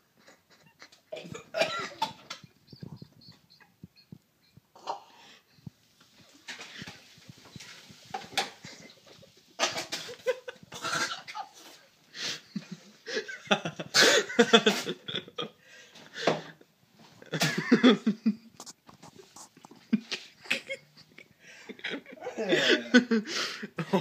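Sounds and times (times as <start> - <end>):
person coughing and gagging: 1.1 - 3.0, 4.8 - 5.3, 9.6 - 11.5.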